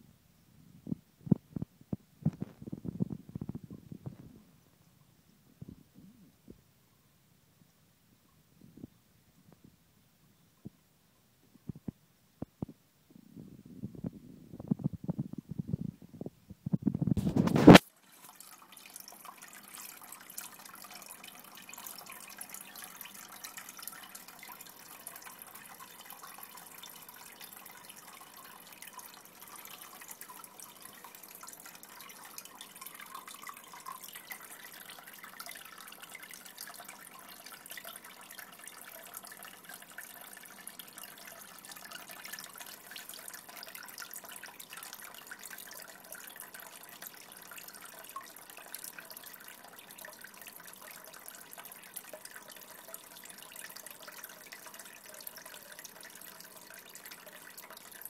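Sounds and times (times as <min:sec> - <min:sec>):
pet water fountain trickling: 0:17.2 - 0:58.0.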